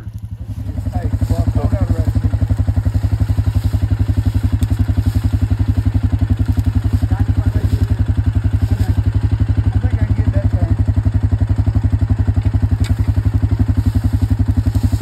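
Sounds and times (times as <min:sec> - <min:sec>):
atv engine idling: 0:00.0 - 0:15.0.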